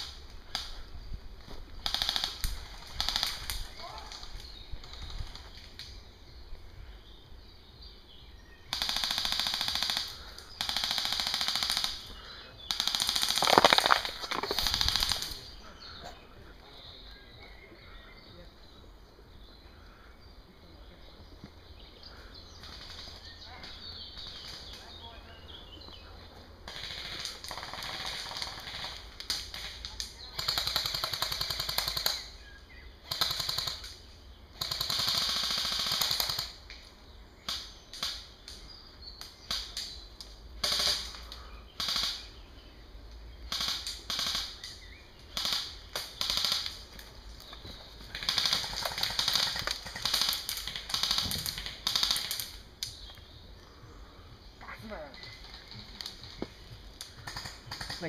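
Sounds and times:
airsoft guns firing bursts: 0:01.8 - 0:03.7, 0:08.7 - 0:15.5, 0:26.7 - 0:32.3, 0:33.0 - 0:36.6, 0:40.6 - 0:41.2, 0:41.8 - 0:42.4, 0:43.5 - 0:44.7, 0:45.3 - 0:47.0, 0:48.0 - 0:52.7, 0:55.3 - 0:58.0.

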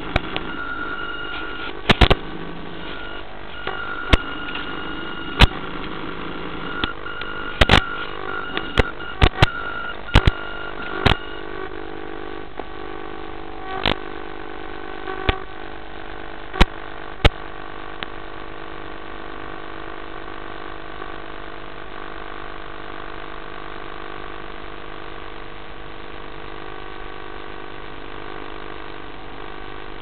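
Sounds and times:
sharp clicks and crackles: 0:00.0 - 0:00.6, 0:01.2 - 0:03.0, 0:03.6 - 0:11.3.

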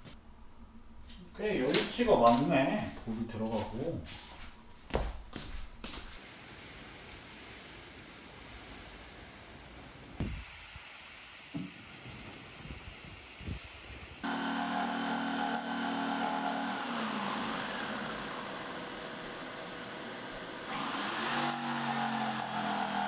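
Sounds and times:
electric jigsaw cutting board: 0:14.2 - 0:23.0
vacuum cleaner running: 0:14.2 - 0:23.0.

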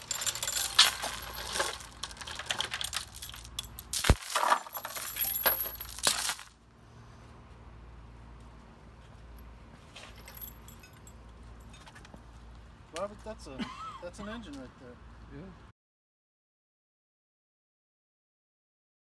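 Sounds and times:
steel chain rattling and clinking: 0:00.0 - 0:06.6, 0:10.0 - 0:11.8.

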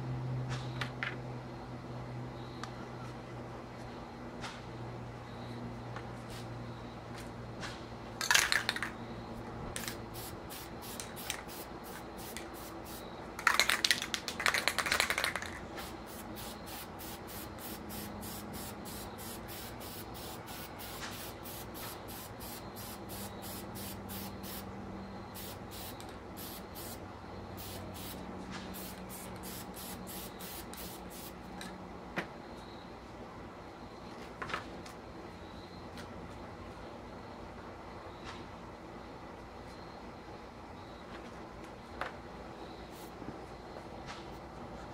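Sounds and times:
spray paint hiss: 0:09.8 - 0:24.7, 0:25.3 - 0:31.4, 0:42.9 - 0:43.2
mixing ball rattling in can: 0:13.4 - 0:15.6.

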